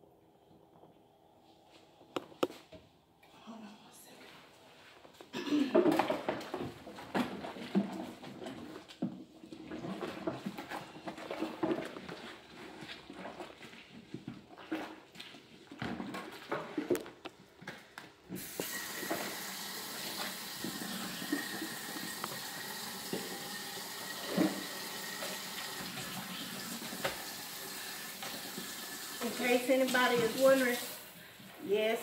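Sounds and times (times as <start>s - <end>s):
colander knocking and splashing: 5.7s - 17.2s, 18.4s - 30.9s
faucet running into metal sink: 18.4s - 31.2s.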